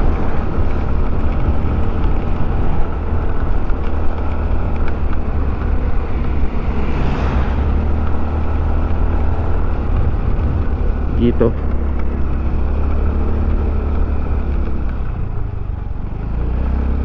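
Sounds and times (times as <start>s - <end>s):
wind on microphone: 0.0s - 11.4s
vehicle engine noise: 0.0s - 17.0s.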